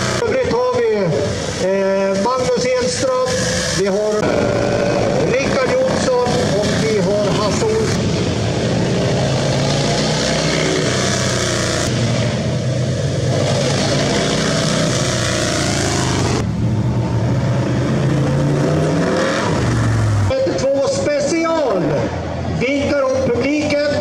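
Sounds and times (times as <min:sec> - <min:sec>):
motorcycle engine revving: 0:00.0 - 0:00.7, 0:02.9 - 0:20.6
hot-rod engine: 0:00.0 - 0:21.3.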